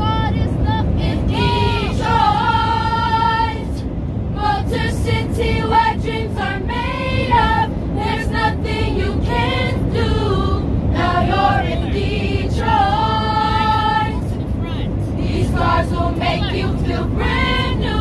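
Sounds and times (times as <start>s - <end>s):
airliner cabin drone: 0.0s - 18.0s
youth choir singing unaccompanied: 1.0s - 3.8s, 4.4s - 14.4s, 15.2s - 18.0s.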